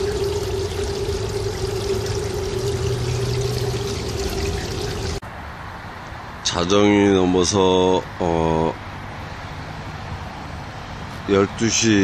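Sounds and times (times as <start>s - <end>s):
low hum: 0.0s - 5.2s
water pouring over rocks: 0.0s - 5.2s.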